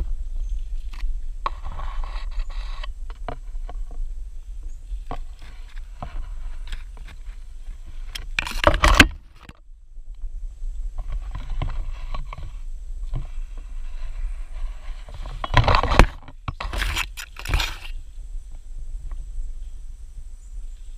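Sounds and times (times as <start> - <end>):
leaves and twigs brushing camera: 0.0 - 9.5, 11.0 - 18.2.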